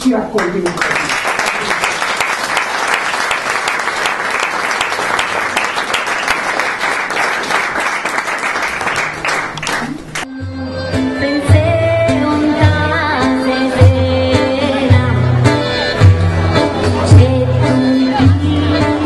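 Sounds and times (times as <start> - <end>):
audience applauding: 0.4 - 10.2.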